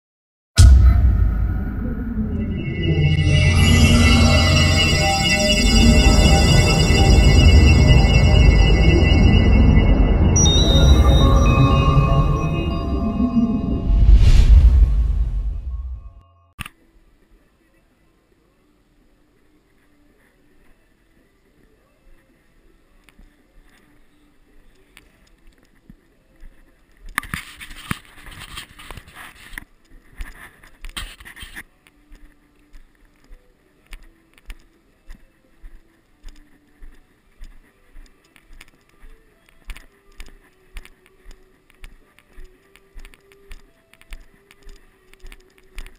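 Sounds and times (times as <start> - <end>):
loud scraping rush: 0.6 - 16.2
sustained high ringing tones: 0.6 - 16.5.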